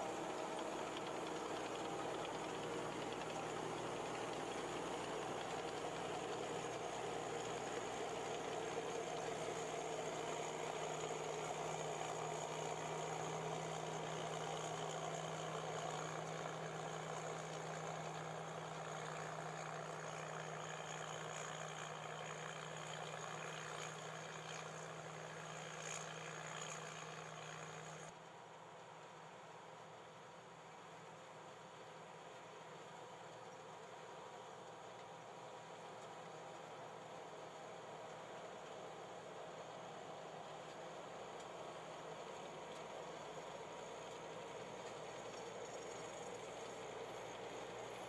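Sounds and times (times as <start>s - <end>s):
combine harvester engine hum: 0.0s - 25.8s.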